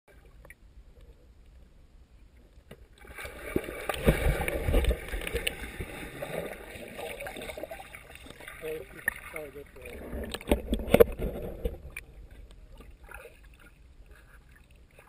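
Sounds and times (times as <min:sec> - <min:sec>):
dull underwater splash: 0:03.0 - 0:15.0
churning rush of bubbles: 0:03.1 - 0:11.9.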